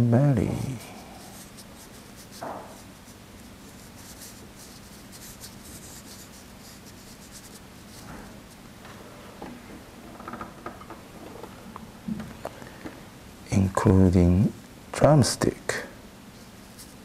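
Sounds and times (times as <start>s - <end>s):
brush swishing on paper: 0.5s - 8.6s.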